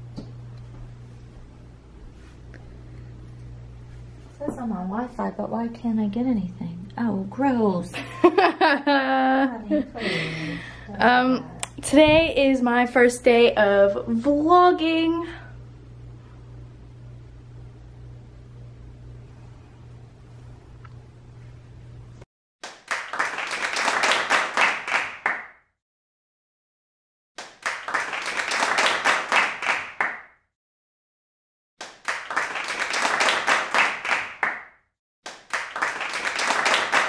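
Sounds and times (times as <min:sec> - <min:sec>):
quick hand clapping: 0:22.6 - 0:25.6, 0:27.4 - 0:30.3, 0:31.8 - 0:34.7, 0:35.3 - 0:37.0.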